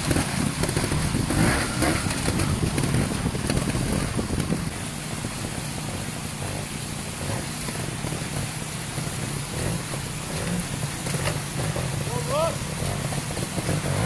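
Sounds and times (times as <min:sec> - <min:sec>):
steady hiss: 0:00.0 - 0:14.0.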